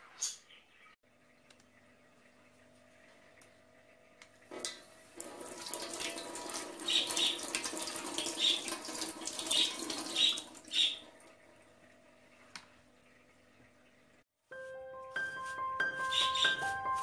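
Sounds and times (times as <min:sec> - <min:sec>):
tap water splashing into sink: 0:04.6 - 0:10.8.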